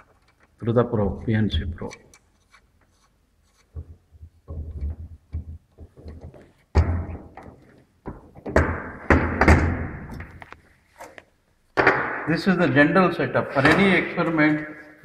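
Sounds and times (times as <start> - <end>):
rubbing and handling noise: 2.2 - 6.7
metal parts thudding and clunking: 3.7 - 10.4
sharp knock: 11.8 - 12.4.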